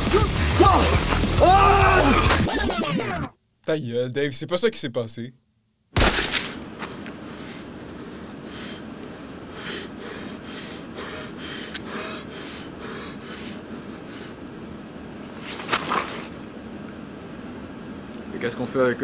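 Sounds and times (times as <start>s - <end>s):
background hiss: 3.4s - 19.0s
brief loud burst: 6.0s - 6.6s
person breathing heavily: 6.8s - 14.4s.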